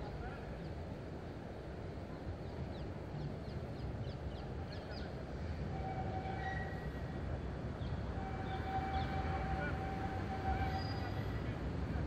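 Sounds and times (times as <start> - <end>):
tram rumbling along track: 0.0 - 12.0
high-pitched tram whine: 5.4 - 12.0.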